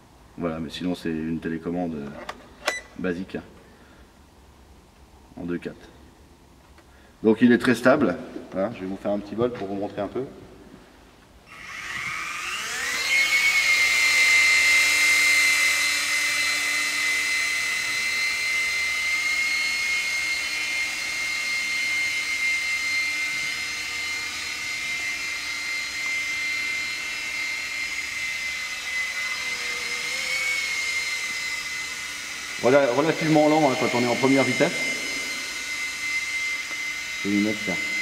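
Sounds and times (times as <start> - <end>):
toy helicopter rotor whine: 11.5 - 38.0.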